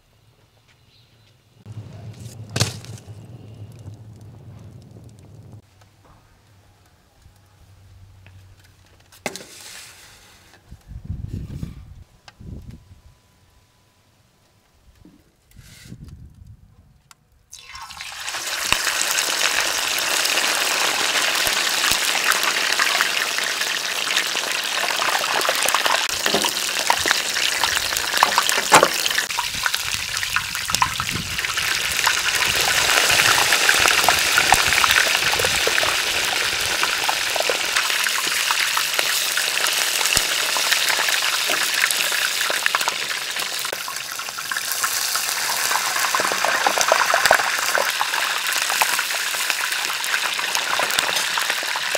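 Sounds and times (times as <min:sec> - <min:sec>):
hot oil sizzling and crackling: 0:17.5 - 0:51.9.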